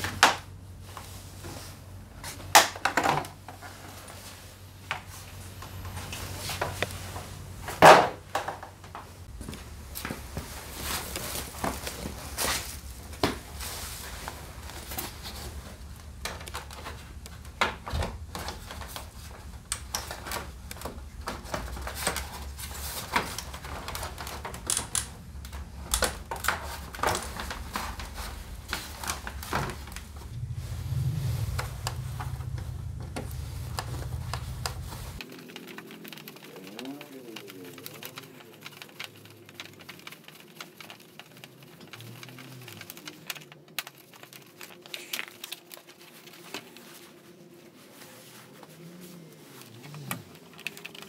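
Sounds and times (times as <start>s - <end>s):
low steady hum: 0.0s - 35.2s.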